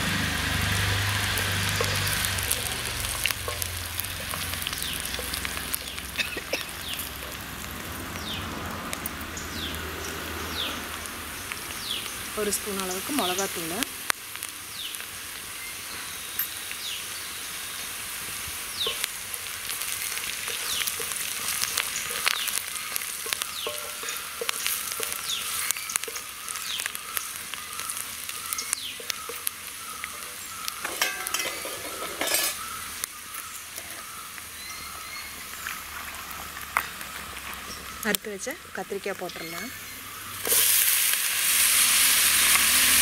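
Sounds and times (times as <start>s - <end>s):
vegetables sizzling in hot oil: 0.0s - 43.0s
wooden spatula scraping a pan: 20.4s - 26.3s, 30.8s - 32.6s.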